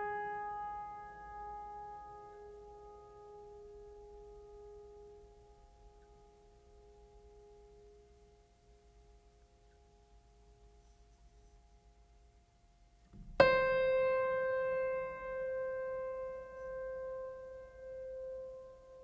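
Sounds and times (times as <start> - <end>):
piano note ringing: 13.2 - 19.0.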